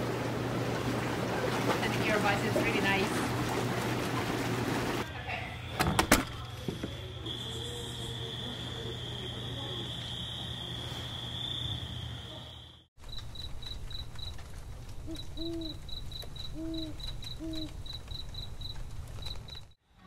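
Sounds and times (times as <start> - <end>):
crickets chirping: 5.4 - 19.8
high-pitched insect drone: 6.9 - 12.6
owl hooting: 15.0 - 15.8, 16.4 - 17.8.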